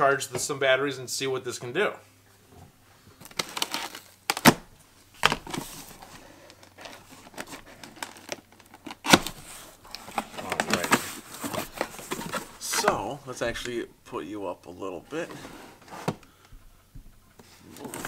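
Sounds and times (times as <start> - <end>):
cardboard snapping: 3.2 - 5.7, 7.8 - 12.5
tape tearing: 3.2 - 13.0
cardboard flaps rustling: 3.2 - 13.8.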